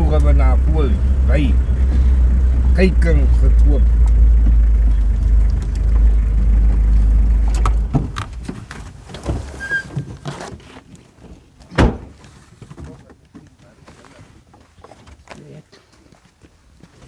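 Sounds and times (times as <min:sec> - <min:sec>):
vehicle rumble from inside cab: 0:00.0 - 0:10.1
loud sharp thump: 0:11.7 - 0:12.2.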